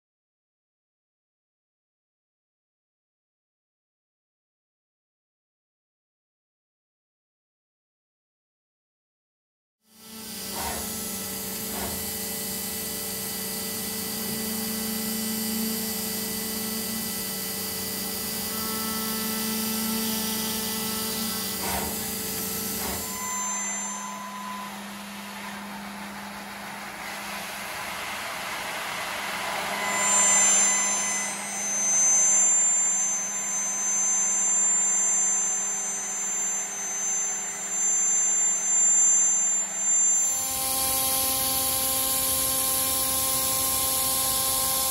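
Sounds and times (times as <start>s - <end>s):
high whining tones: 10.0s - 44.9s
router spindle whining while milling: 10.0s - 44.9s.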